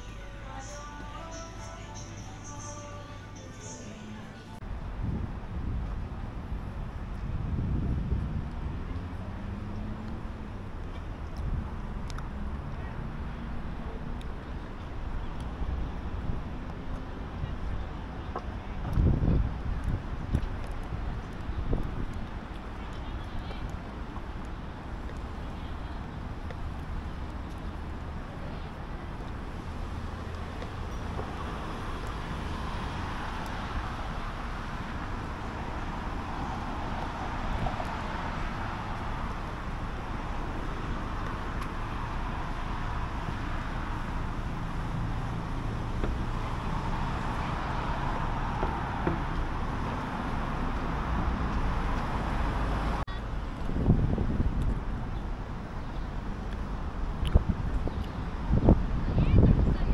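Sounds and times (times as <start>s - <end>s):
cars passing on street: 0.0s - 59.9s.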